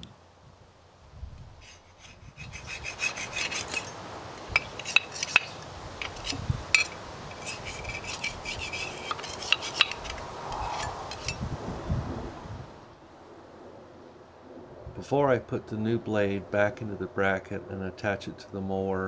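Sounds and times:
metal scraping on metal: 0:01.6 - 0:11.4.

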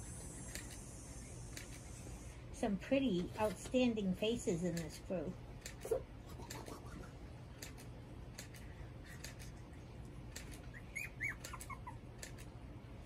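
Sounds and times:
puppies squeaking: 0:10.5 - 0:12.5.

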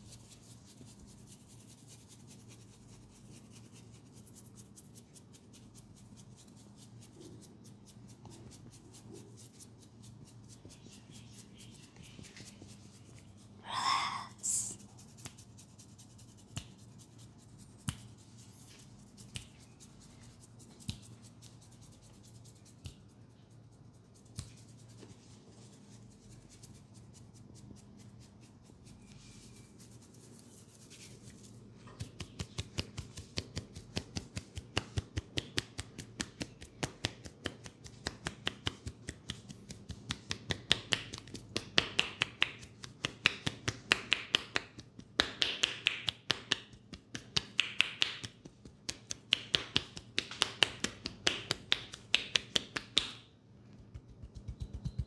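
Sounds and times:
hands rustling in hair: 0:23.9 - 0:46.1.

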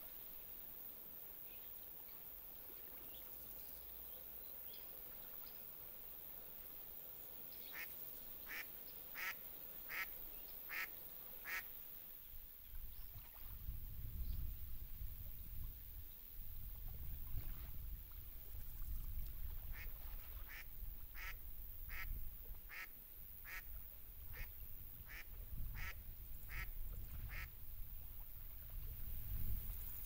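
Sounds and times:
duck quacking: 0:08.5 - 0:10.1, 0:10.7 - 0:11.6, 0:21.2 - 0:22.1, 0:22.7 - 0:23.6, 0:25.1 - 0:26.7, 0:27.3 - 0:27.5.

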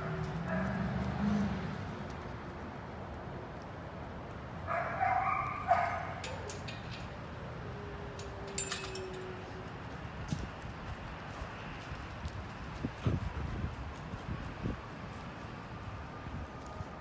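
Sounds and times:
dog barking: 0:00.5 - 0:00.8, 0:04.7 - 0:06.4.

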